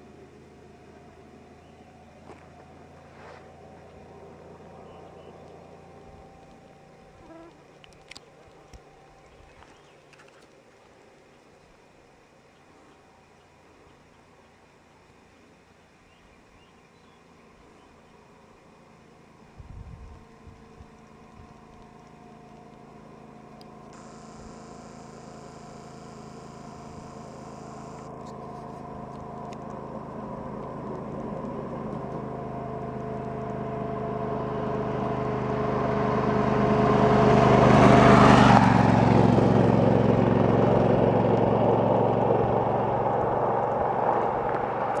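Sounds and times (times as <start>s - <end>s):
tyres on gravel road: 0.0s - 45.0s
motorcycle engine passing by: 23.9s - 45.0s.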